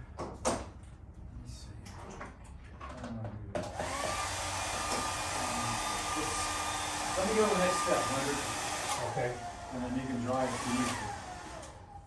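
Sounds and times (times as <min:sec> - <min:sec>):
hair dryer blowing: 0:03.7 - 0:12.0.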